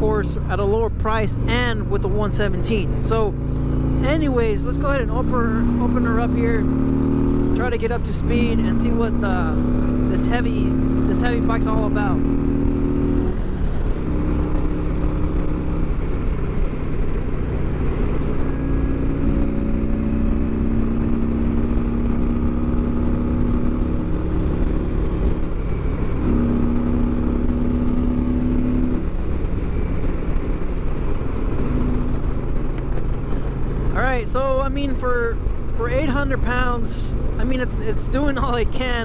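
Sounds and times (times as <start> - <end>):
motorcycle engine accelerating: 0.0 - 39.0.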